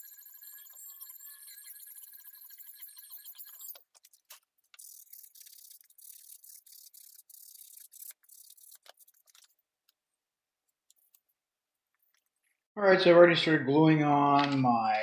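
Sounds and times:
scratchy rubbing of foam: 4.9s - 9.7s.

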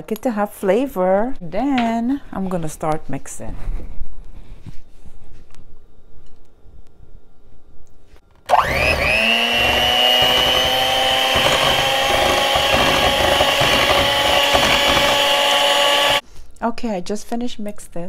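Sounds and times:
electric mixer motor whine: 8.4s - 16.2s.

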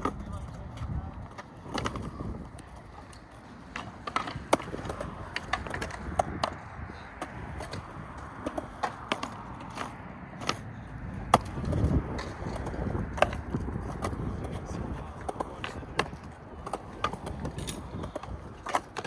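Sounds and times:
skateboard clacking on concrete: 0.0s - 19.0s
skateboard wheels rolling on concrete: 0.0s - 19.0s.

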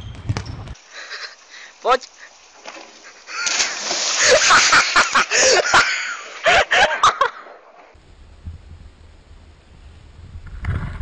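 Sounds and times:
churning water: 3.2s - 6.7s
person splashing into water: 3.3s - 6.6s
people laughing loudly: 3.3s - 7.5s.

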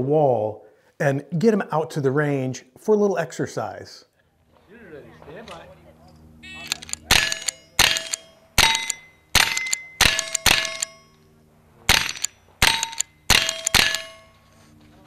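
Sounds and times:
rifle shots: 6.5s - 11.0s, 11.9s - 14.4s
bullets clanging on steel targets: 6.6s - 11.3s, 11.9s - 14.5s.

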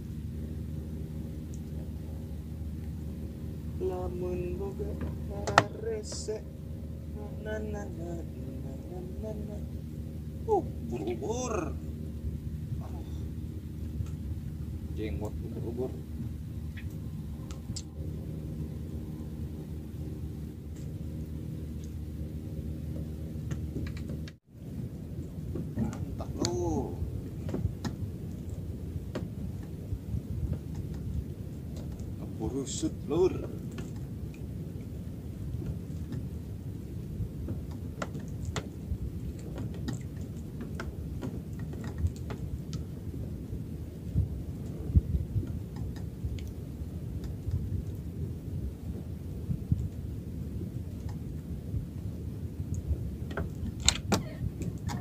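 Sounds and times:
small engine idling: 0.0s - 24.4s
low wind rumble: 0.0s - 55.0s
clicks and knocks from wooden boat: 37.4s - 43.0s.

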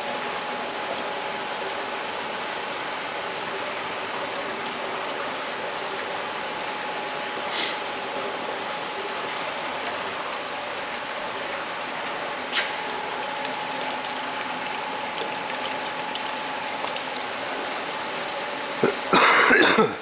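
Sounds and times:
water running through troughs: 9.0s - 19.1s.

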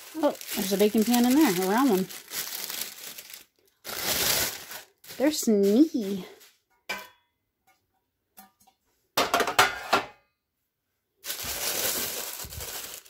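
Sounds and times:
packaging crinkling: 0.0s - 6.2s, 11.2s - 13.0s
metal pans clattering: 6.8s - 7.2s, 8.4s - 10.2s.

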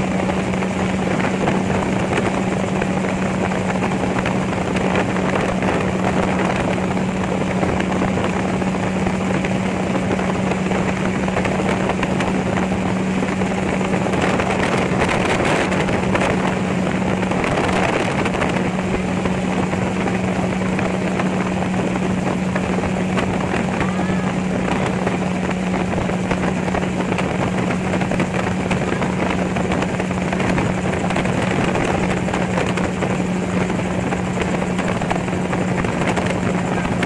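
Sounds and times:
gyrocopter engine drone: 0.0s - 37.0s.

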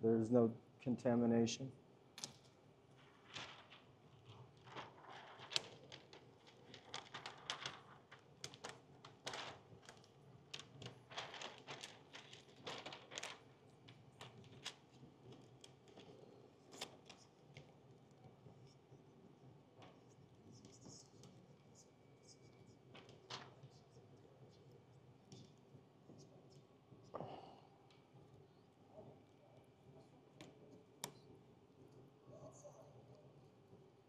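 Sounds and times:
plastic film crackling: 3.0s - 17.7s, 22.4s - 23.9s.

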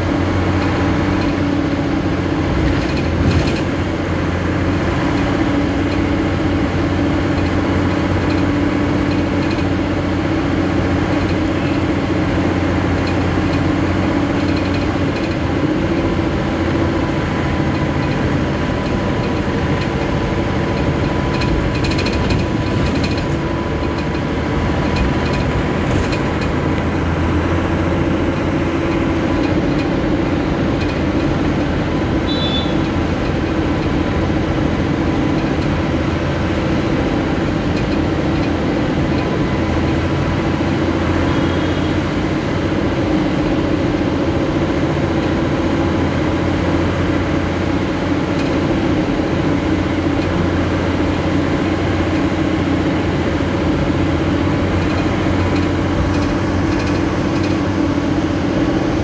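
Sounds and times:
vehicle engine droning: 0.0s - 59.0s
mechanical rattles and clicks: 17.7s - 32.2s, 37.2s - 40.8s, 54.0s - 59.0s.

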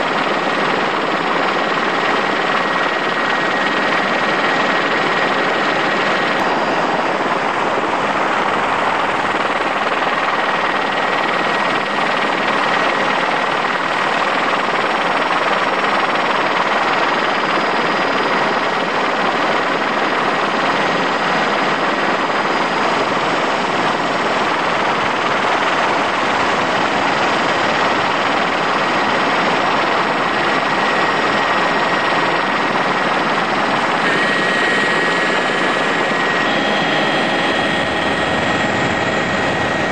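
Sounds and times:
helicopter engine and rotor noise: 0.0s - 39.9s
faint thin whine: 30.3s - 39.9s.

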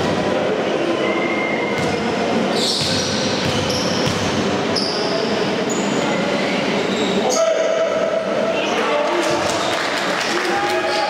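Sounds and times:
sports hall hubbub: 0.0s - 11.0s
shoes squeaking on court floor: 2.5s - 7.2s.

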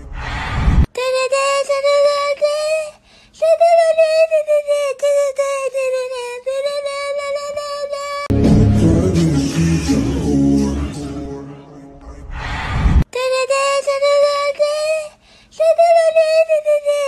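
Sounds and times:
person singing high note: 8.3s - 12.3s.

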